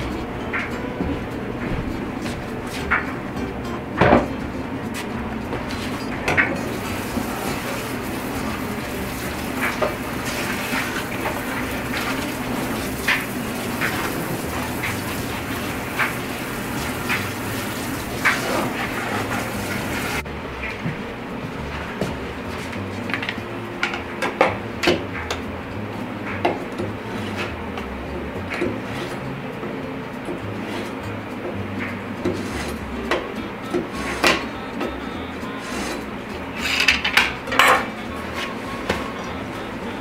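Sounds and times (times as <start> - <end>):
faucet running into steel sink: 6.6 - 20.2
water splashing over meat: 6.7 - 20.2.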